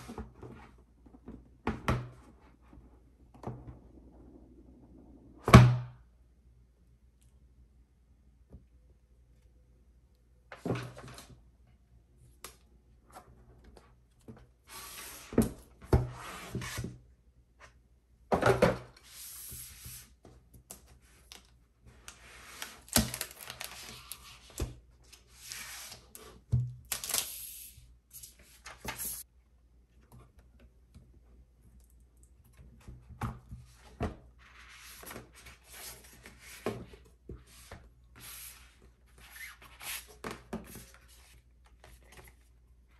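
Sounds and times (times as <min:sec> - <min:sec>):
rubbing and sliding of packaging: 0:21.9 - 0:29.2.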